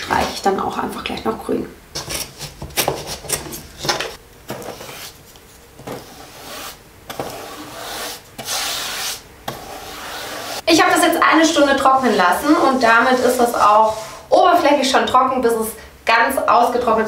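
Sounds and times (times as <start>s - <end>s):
paintbrush scratching on wooden slats: 4.5s - 10.6s, 11.4s - 14.3s.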